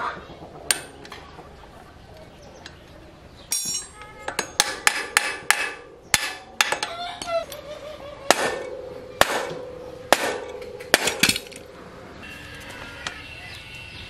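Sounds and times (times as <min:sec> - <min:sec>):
hammer striking metal frame: 0:00.7 - 0:00.9, 0:03.5 - 0:07.0, 0:08.3 - 0:11.8.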